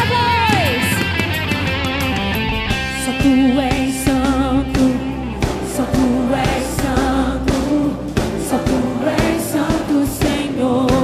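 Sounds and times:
gospel worship singing with band: 3.0 - 11.0.

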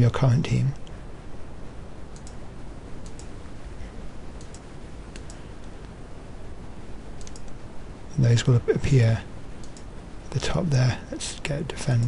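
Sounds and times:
faint low hum: 0.0 - 12.0
computer mouse clicking: 2.1 - 2.4, 3.0 - 3.3, 4.4 - 5.9, 7.2 - 7.6, 9.6 - 9.9.

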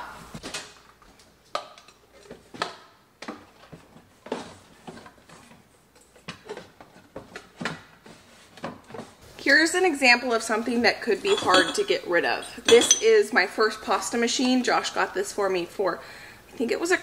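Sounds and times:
metal bowls knocking and clinking: 11.2 - 12.0, 12.6 - 13.2.

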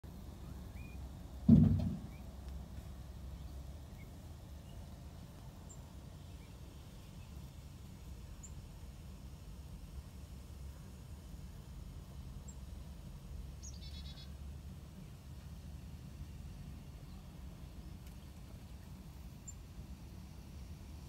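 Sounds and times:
low steady rumble: 0.0 - 21.0
faint bird chirps: 0.4 - 1.1, 2.0 - 2.4, 13.6 - 14.4
dull thump: 1.4 - 2.2.

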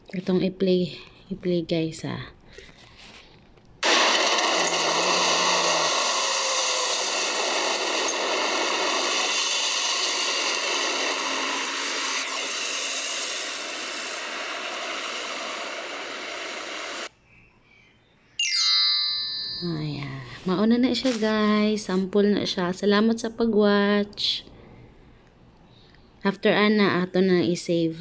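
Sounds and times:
steady rushing street noise: 3.8 - 17.1.

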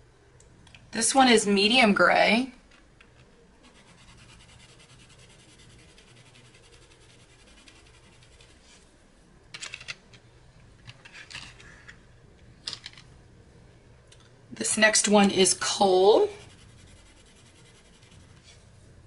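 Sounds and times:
pencil scribbling on paper: 3.6 - 8.6, 16.4 - 18.6.

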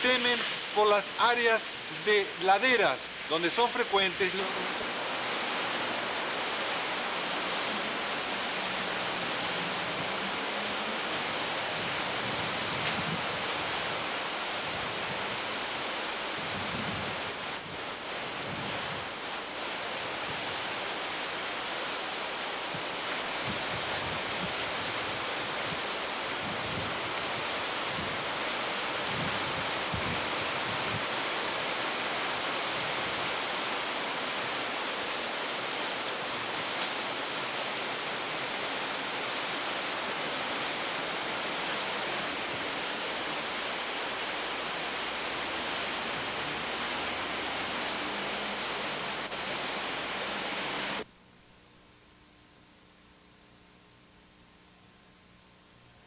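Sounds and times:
storm wind: 0.0 - 51.1
heavy rain: 0.0 - 51.6
wind buffeting microphone: 9.0 - 19.2, 22.7 - 31.3.

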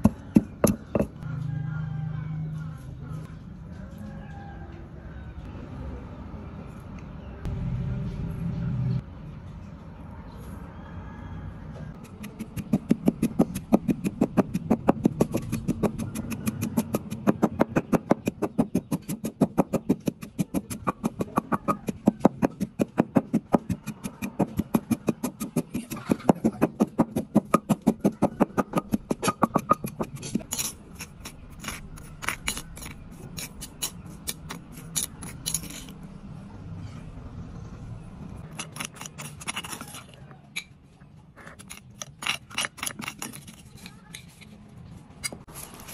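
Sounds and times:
pestle pounding in stone mortar: 0.0 - 1.2, 12.0 - 35.8, 38.5 - 40.0
metal spoon scraping stone: 23.8 - 36.1, 38.4 - 40.8, 41.5 - 44.6.

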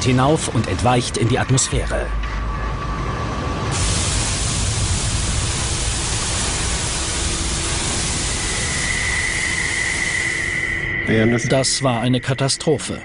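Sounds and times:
gas venting under high pressure: 2.6 - 11.5.

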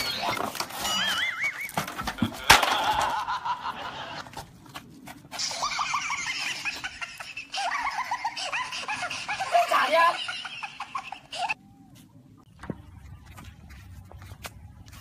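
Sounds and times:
person laughing: 2.2 - 4.4, 5.4 - 11.6.

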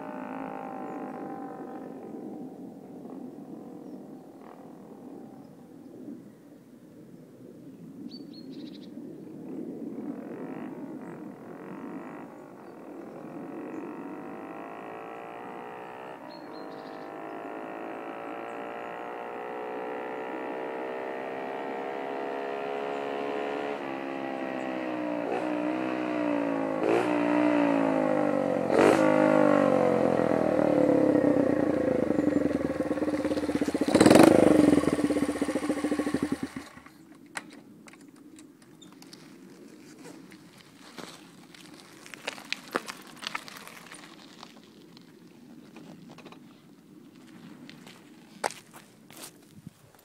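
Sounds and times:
small motorcycle engine revving: 0.0 - 2.4, 10.2 - 37.0.

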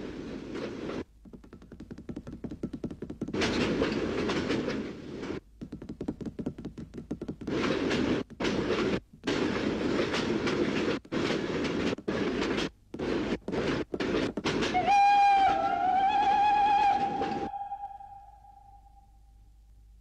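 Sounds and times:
wavering whistle-like tone: 14.8 - 19.3.

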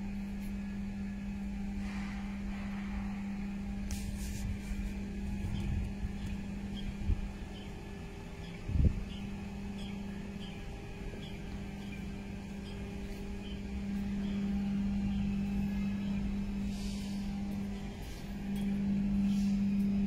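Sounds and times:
diesel engine idling: 4.9 - 20.0.

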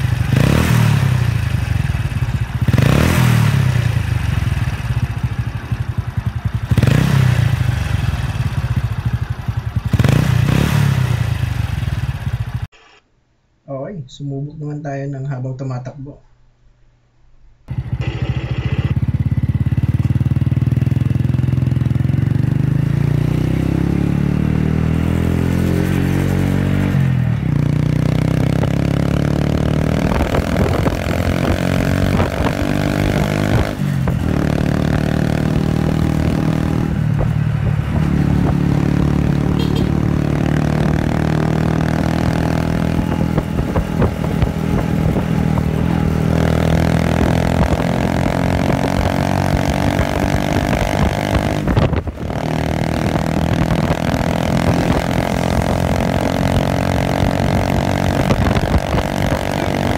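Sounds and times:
motorcycle engine revving: 0.0 - 12.7, 17.7 - 59.9.

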